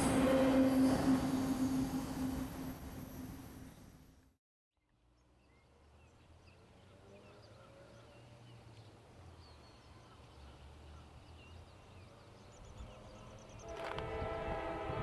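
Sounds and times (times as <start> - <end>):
distant train rumble: 0.0 - 4.0, 12.7 - 15.0
songbirds chirping: 4.8 - 13.9.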